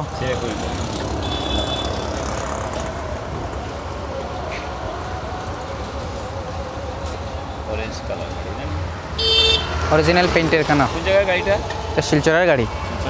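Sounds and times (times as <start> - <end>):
rumble of passing vehicles: 0.0 - 13.0.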